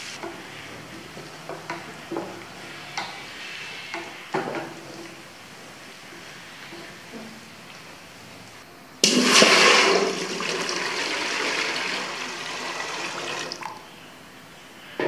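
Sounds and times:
water pouring into metal pot: 9.0 - 13.8.

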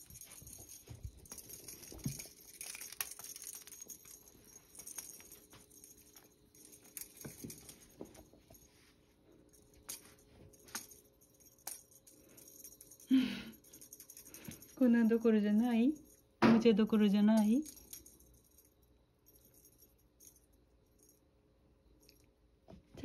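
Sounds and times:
cat moving on rug: 0.0 - 2.5.

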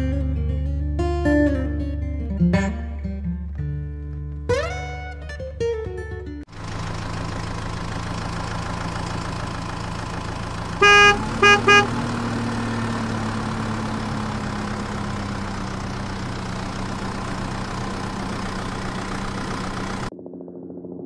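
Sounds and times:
truck engine running: 6.5 - 21.0
truck horn honks: 10.6 - 12.9.

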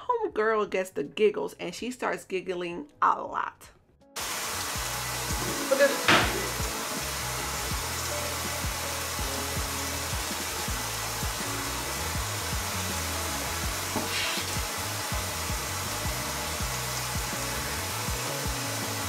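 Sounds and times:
soft background music: 0.0 - 19.0
faucet running into metal sink: 4.2 - 19.0.

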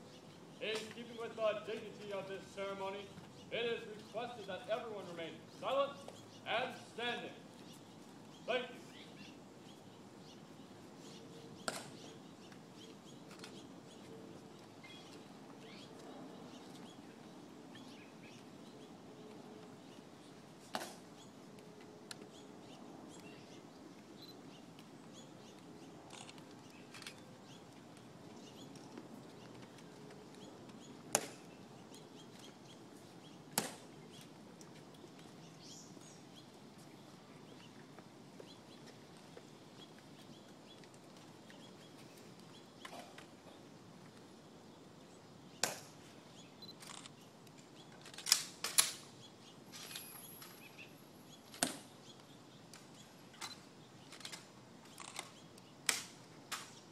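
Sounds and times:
heel clicks and rifle handling: 46.8 - 49.1, 52.8 - 56.8.

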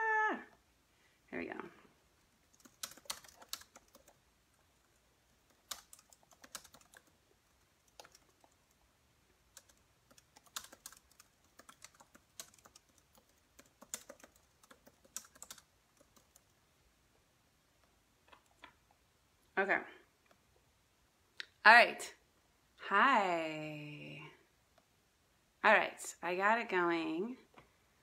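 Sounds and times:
keyboard typing: 2.5 - 4.2, 4.8 - 8.8, 9.5 - 16.6.

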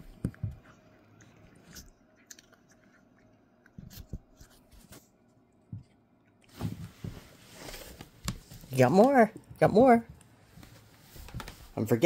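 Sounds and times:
cat crunching treats: 0.7 - 4.1.

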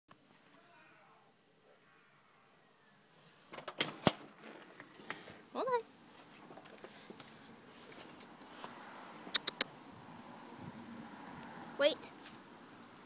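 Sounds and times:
door latch and frame clacking: 3.6 - 4.3
sharp clicks: 9.3 - 9.7.

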